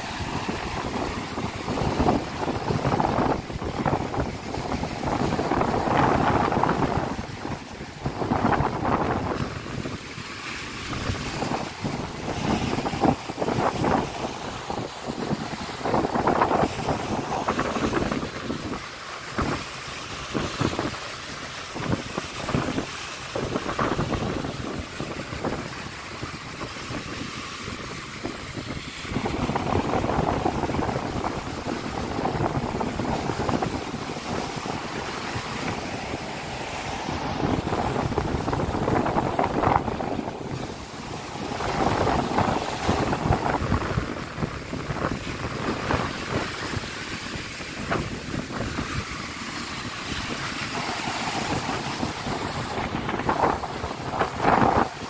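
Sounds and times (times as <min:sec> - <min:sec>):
wind buffeting microphone: 0:00.0 - 0:55.0
surf breaking on pebble beach: 0:21.8 - 0:55.0.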